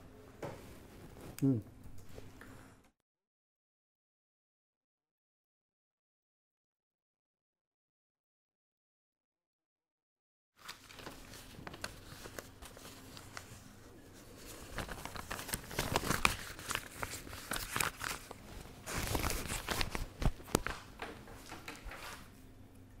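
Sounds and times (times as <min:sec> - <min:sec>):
rustling and crinkling handling noise: 0:10.6 - 0:22.4.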